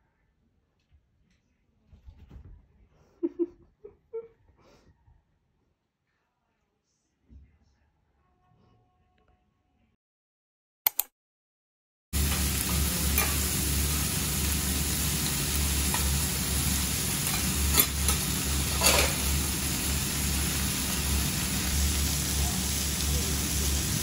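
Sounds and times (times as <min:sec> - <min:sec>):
sharp clicks: 0:10.9 - 0:11.1
food sizzling on griddle: 0:12.2 - 0:24.0
metal spatula scraping griddle: 0:17.2 - 0:19.4.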